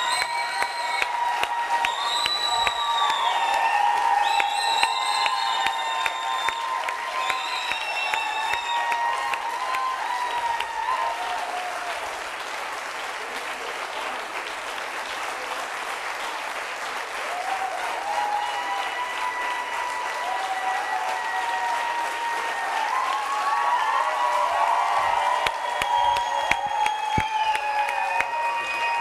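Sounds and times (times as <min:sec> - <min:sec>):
audience applauding: 0:00.0 - 0:29.0.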